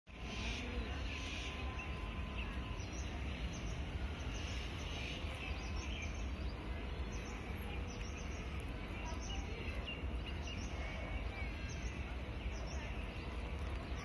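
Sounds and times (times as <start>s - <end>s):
birds chirping: 0.1s - 14.0s.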